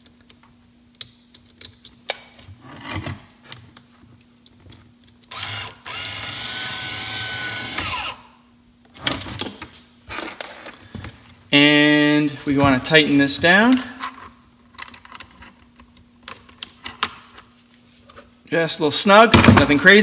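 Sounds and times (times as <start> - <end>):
small electric motor whine: 5.3 - 8.3.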